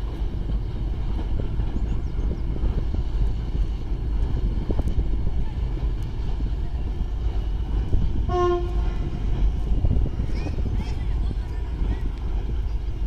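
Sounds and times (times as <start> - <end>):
train rumbling over bridge: 0.0 - 13.0
locomotive horn blast: 8.3 - 9.1.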